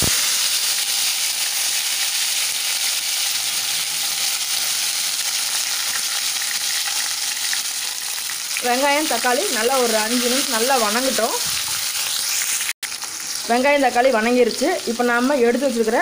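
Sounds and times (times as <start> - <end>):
hot oil sizzling loudly: 0.0 - 16.0.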